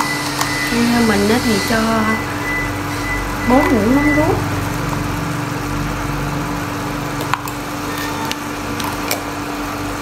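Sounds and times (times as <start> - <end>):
pork sizzling in a pan: 4.4 - 10.0.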